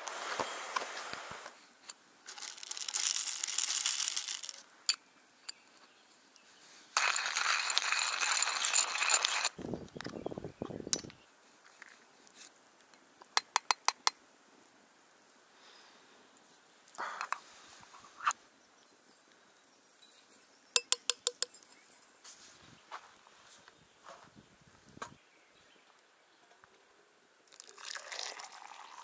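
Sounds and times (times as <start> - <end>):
crinkling rustling noise: 0.0 - 4.7, 5.7 - 10.2, 11.4 - 12.9, 21.8 - 25.0.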